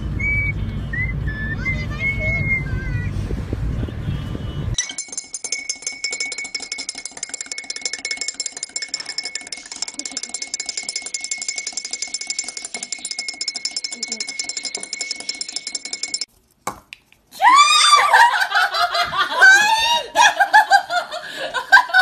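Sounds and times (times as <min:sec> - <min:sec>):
spoon clinking in ceramic mug: 0:04.8 - 0:16.3.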